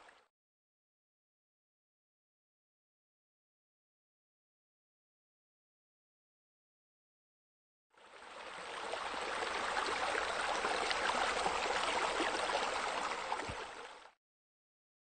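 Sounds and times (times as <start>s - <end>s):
running splashing water: 8.4s - 14.1s.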